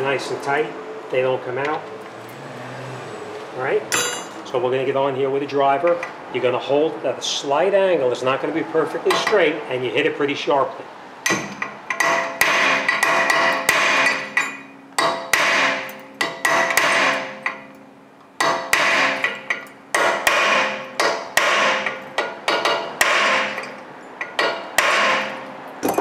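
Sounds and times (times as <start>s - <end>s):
hammer striking impact driver: 11.3s - 17.6s, 18.4s - 26.0s.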